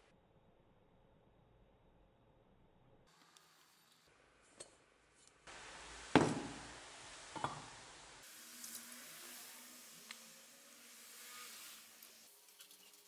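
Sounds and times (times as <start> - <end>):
liquid poured with faint hiss: 5.5 - 13.0.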